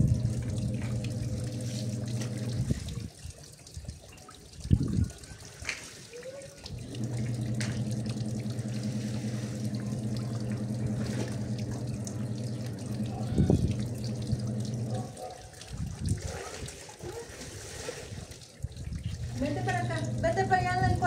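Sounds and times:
steady machine hum: 0.0s - 3.0s, 6.7s - 15.1s, 19.3s - 21.0s
water splashing and dripping: 0.0s - 21.0s.

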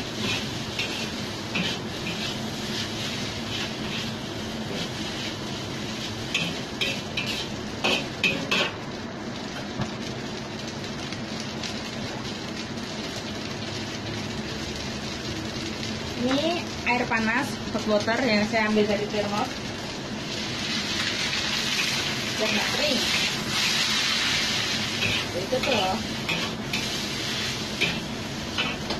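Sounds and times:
noodles sizzling: 0.0s - 28.9s
metal spatula scraping a wok: 0.1s - 5.3s, 6.4s - 8.7s, 20.8s - 28.9s.

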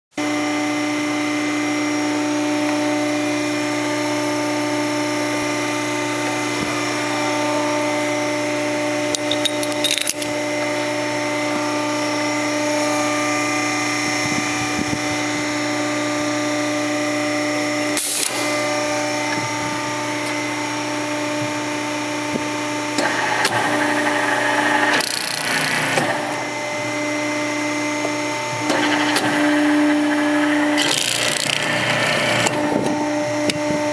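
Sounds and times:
riveting machine motor hum: 0.2s - 33.9s
riveting head working rivet: 9.1s - 10.3s, 24.9s - 26.0s, 28.7s - 32.6s
sharp machine clicks: 24.9s - 25.8s, 30.8s - 31.8s.

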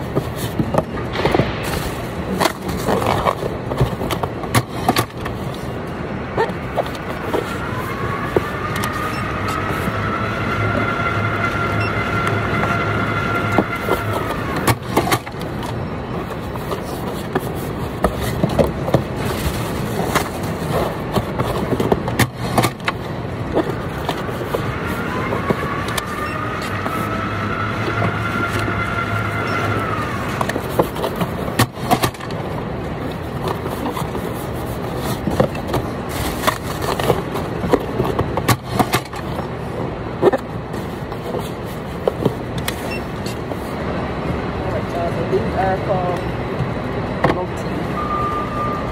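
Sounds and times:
cardboard boxes knocking and rustling: 0.0s - 5.8s, 13.5s - 26.9s, 33.2s - 39.6s
machine motor whining: 6.9s - 15.8s, 22.5s - 31.0s.

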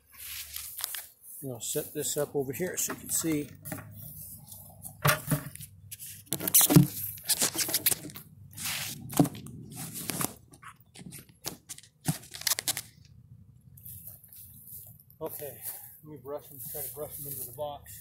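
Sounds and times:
fingers rubbing on camera: 3.8s - 11.8s
camera handling bumps: 4.9s - 8.2s, 8.8s - 13.0s.

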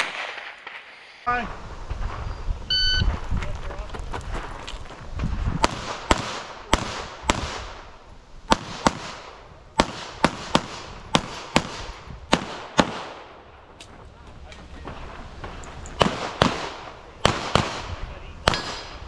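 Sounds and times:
pistol shots: 5.6s - 7.8s, 8.5s - 13.3s, 16.0s - 19.0s.

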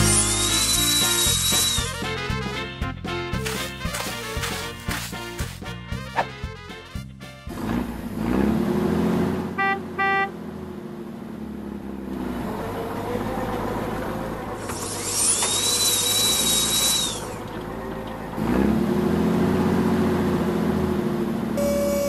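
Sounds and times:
power tool whine: 0.0s - 2.0s, 14.6s - 17.4s
heavy vehicle engine pulling away: 7.5s - 22.0s
horn beeps: 9.6s - 10.3s, 21.6s - 22.0s.

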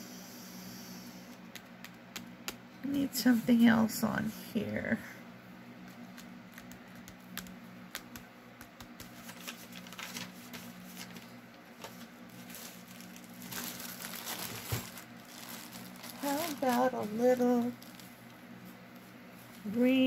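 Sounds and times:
steady low hum: 0.0s - 20.0s
paper rustling and tapping: 5.8s - 13.7s, 14.4s - 15.0s.

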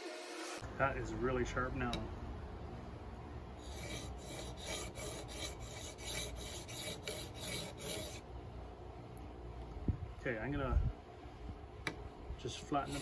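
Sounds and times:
chisel scraping on sharpening stone: 3.6s - 8.2s.

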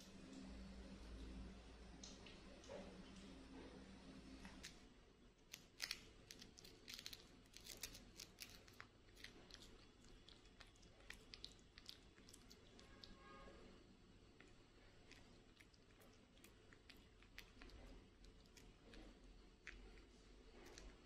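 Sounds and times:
monkey chewing crunchy food: 5.5s - 13.1s, 14.4s - 21.0s.

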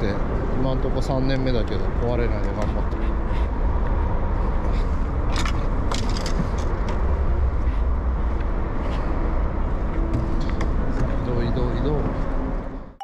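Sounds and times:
fishing gear clicks and knocks: 5.3s - 7.0s.

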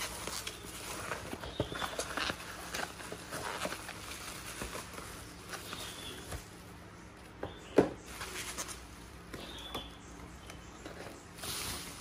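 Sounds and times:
bubble wrap and cardboard rustling: 0.0s - 6.8s, 8.0s - 9.6s, 10.8s - 12.0s.

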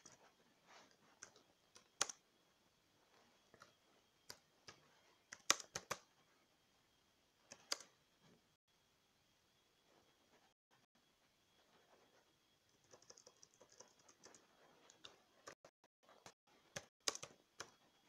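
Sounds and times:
keyboard and mouse clicks: 1.2s - 2.2s, 3.5s - 6.1s, 7.5s - 8.0s, 12.7s - 17.8s.

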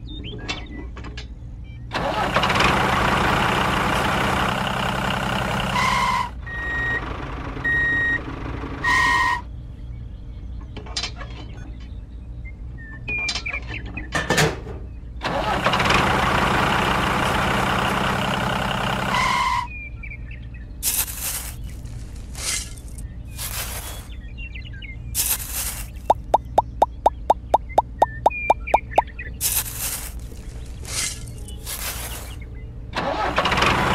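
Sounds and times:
heavy vehicle engine running: 1.9s - 9.7s, 15.2s - 19.7s, 20.8s - 24.3s, 25.0s - 33.9s.

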